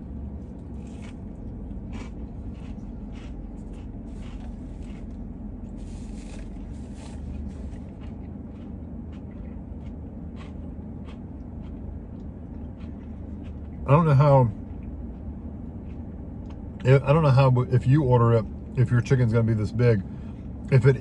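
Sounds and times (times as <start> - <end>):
low hum: 0.0 - 21.0
crunchy chewing: 0.4 - 16.8.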